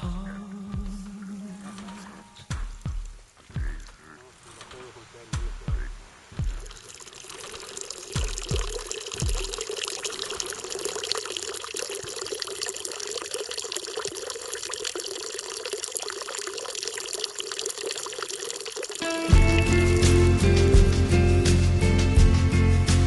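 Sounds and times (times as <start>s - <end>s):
music: 0.0s - 3.9s, 19.0s - 23.0s
low thumps: 2.5s - 4.0s, 4.6s - 6.8s, 8.2s - 9.6s, 19.3s - 21.4s
water pouring into trough: 6.4s - 20.2s.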